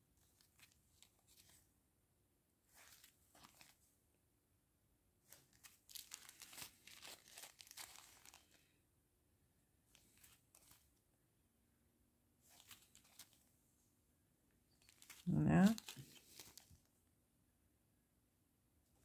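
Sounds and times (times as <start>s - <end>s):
plastic bags crinkling: 5.5s - 8.6s, 12.5s - 13.4s, 14.8s - 16.8s.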